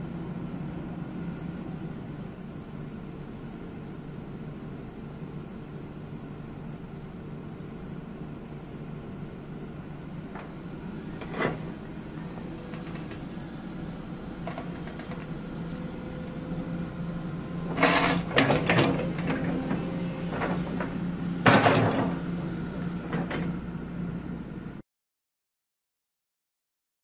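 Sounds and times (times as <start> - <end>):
excavator diesel engine running: 0.0 - 24.8.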